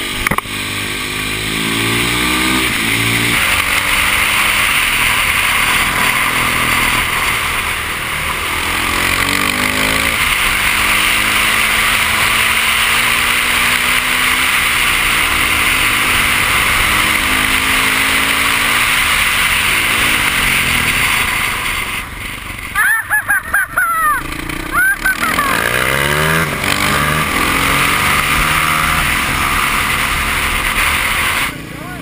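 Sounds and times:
loud steady rushing noise: 0.0 - 32.0
motorcycle engine revving: 0.0 - 32.0.

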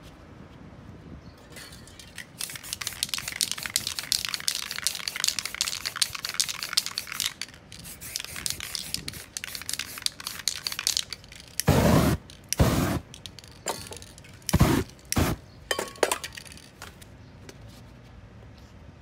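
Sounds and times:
spray paint can bursts: 2.1 - 15.4.

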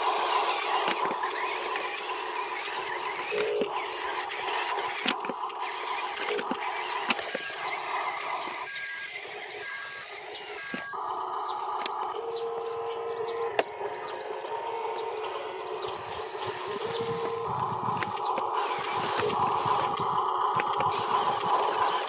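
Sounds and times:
toy truck motor whirring: 0.0 - 22.0.

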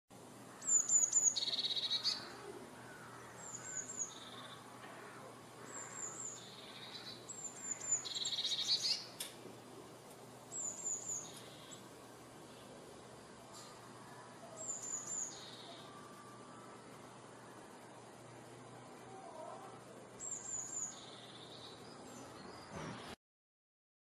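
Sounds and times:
bird singing with trill: 0.5 - 9.2, 10.5 - 11.9, 14.1 - 17.7, 20.2 - 22.9.

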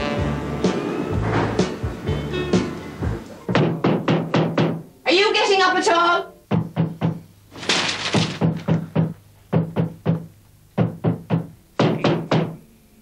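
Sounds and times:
broom handle banging on ceiling: 6.5 - 12.6.

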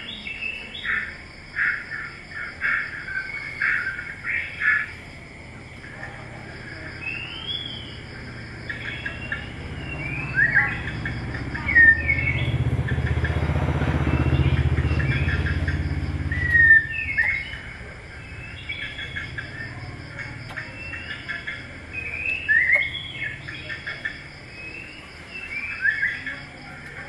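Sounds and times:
small birds chirping: 0.0 - 27.0
motorcycle engine passing: 7.6 - 27.0.

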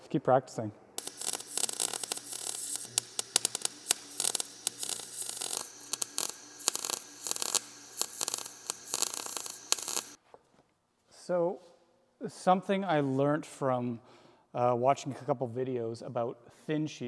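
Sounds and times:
welding arc crackling and hissing: 1.0 - 10.2.

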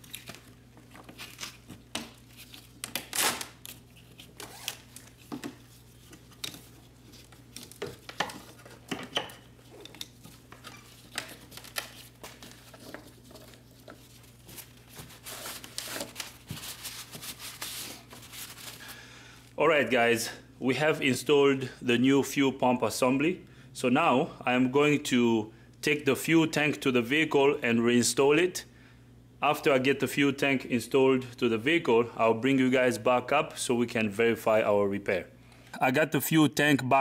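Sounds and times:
gloved hands rustling plastic: 0.0 - 19.6.

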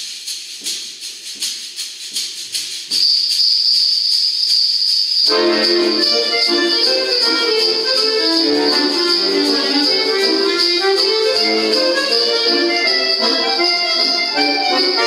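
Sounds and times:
jingle bells shaken: 0.0 - 15.0
button accordion playing: 5.3 - 15.0.

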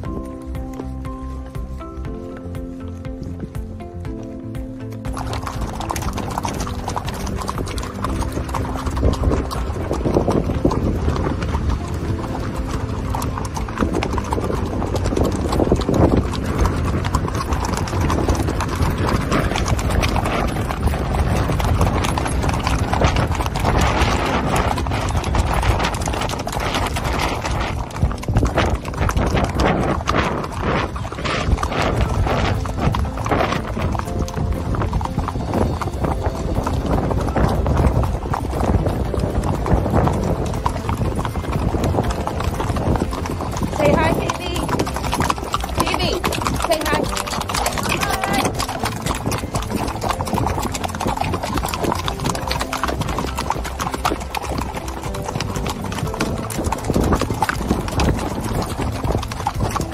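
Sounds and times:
horse hooves on gravel trail: 0.0 - 59.9
music: 0.0 - 59.9.

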